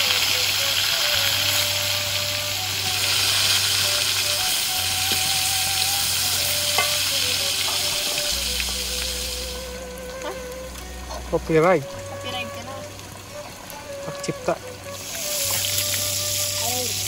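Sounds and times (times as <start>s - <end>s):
food deep-frying in oil: 0.0s - 17.0s.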